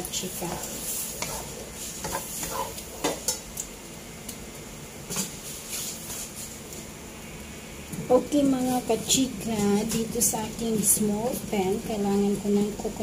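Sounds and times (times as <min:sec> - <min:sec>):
spice paste sizzling in oil: 0:00.0 - 0:13.0
wooden spatula scraping a wok: 0:00.1 - 0:03.4, 0:05.1 - 0:06.6.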